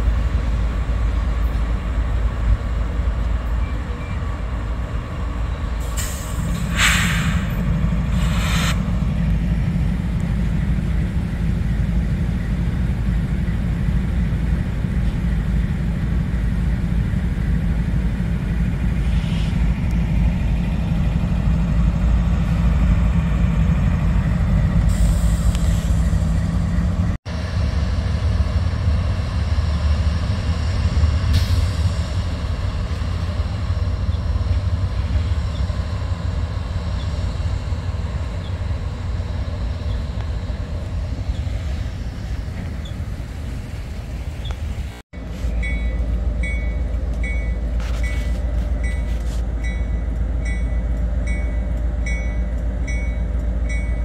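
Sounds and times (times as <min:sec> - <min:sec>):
freight train diesel drone: 0:00.0 - 0:54.0
air hissing: 0:05.8 - 0:09.1.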